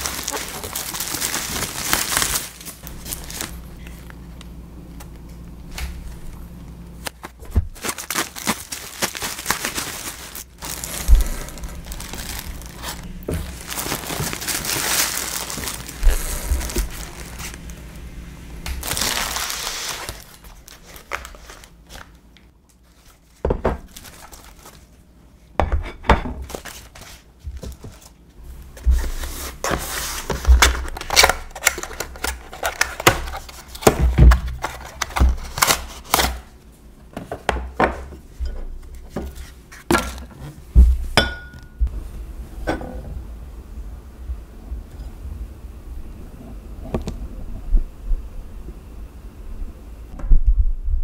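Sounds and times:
bubble wrap crinkling: 0:00.0 - 0:06.4, 0:07.0 - 0:18.1, 0:18.7 - 0:25.1, 0:26.5 - 0:36.6.

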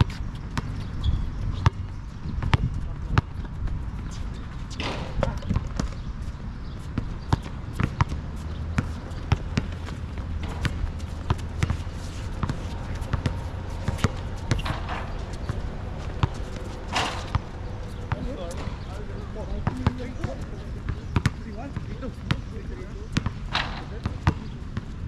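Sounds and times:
basketball bouncing on asphalt: 0:00.0 - 0:04.0, 0:04.8 - 0:25.0
steady low rumble: 0:08.8 - 0:20.1.

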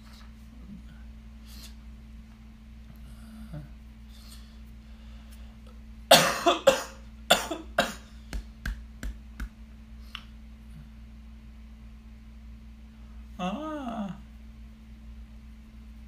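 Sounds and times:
person coughing: 0:06.1 - 0:08.1.

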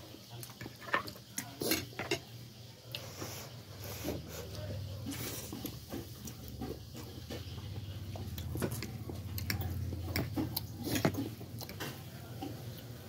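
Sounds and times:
noodles slurped and chewed: 0:02.9 - 0:13.0.

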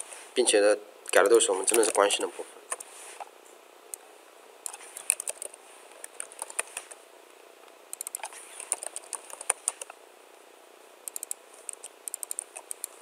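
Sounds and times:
keyboard typing: 0:04.7 - 0:06.9, 0:07.9 - 0:09.9, 0:11.1 - 0:13.0.

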